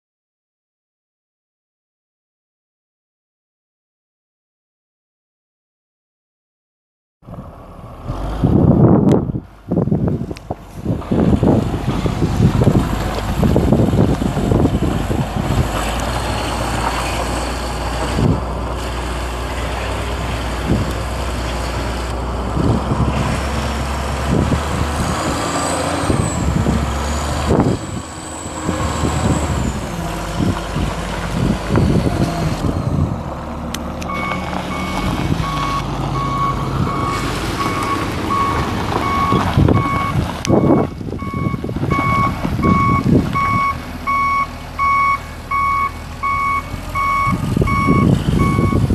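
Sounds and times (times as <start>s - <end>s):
truck engine running: 7.3s - 48.9s
wind buffeting microphone: 8.1s - 44.2s, 46.3s - 48.9s
tyres on gravel: 9.7s - 48.9s
reversing alarm beeping: 34.1s - 48.9s.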